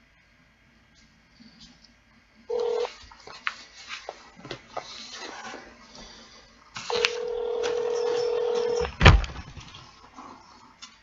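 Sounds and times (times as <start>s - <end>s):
ringback tone: 2.5s - 2.9s, 6.9s - 8.9s.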